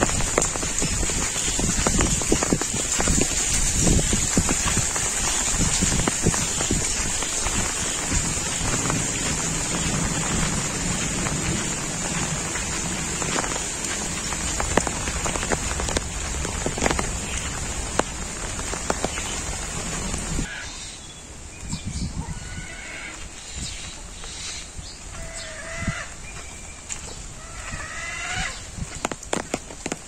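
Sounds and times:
heavy rain hissing: 0:00.0 - 0:20.6.

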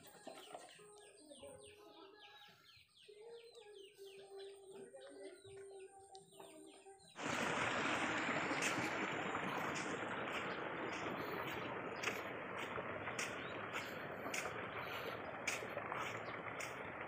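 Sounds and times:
bird chirping: 0:00.0 - 0:17.0
faint hum: 0:07.2 - 0:17.0
steady rushing noise: 0:07.2 - 0:17.0.

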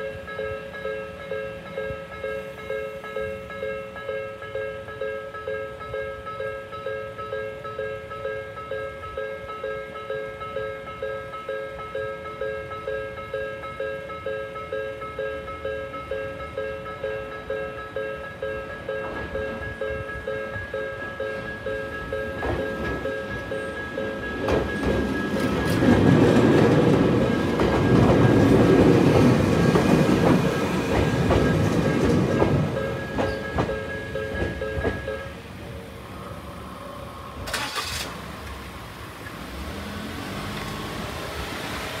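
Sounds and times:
level-crossing bell ringing: 0:00.0 - 0:29.8, 0:30.4 - 0:35.4
train passing: 0:00.0 - 0:42.0.

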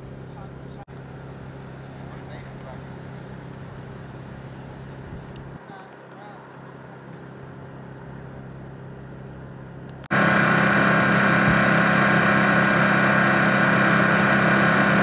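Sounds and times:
engine idling: 0:10.0 - 0:15.0.

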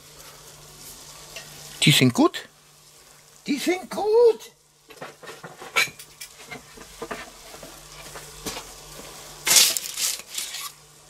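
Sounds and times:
sausages sizzling on a grill: 0:00.0 - 0:11.0
tongs scraping on paper: 0:09.5 - 0:10.8.

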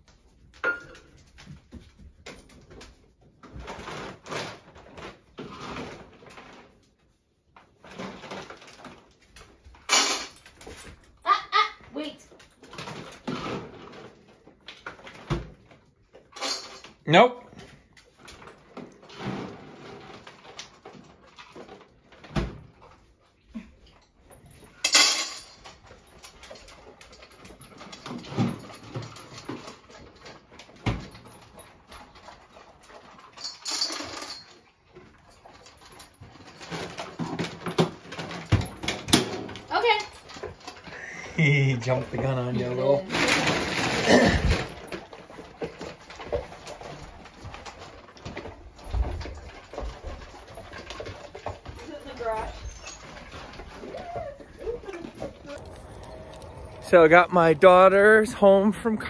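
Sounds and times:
household items being moved about: 0:00.0 - 0:59.0
dog whining: 0:52.1 - 0:56.9.

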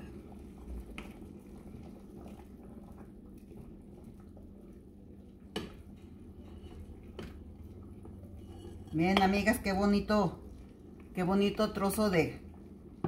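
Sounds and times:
ladle stirring broth in pot: 0:00.0 - 0:09.8.

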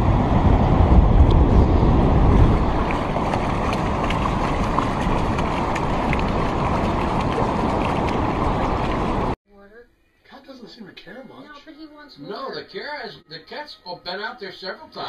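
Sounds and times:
wind buffeting microphone: 0:00.0 - 0:09.4.

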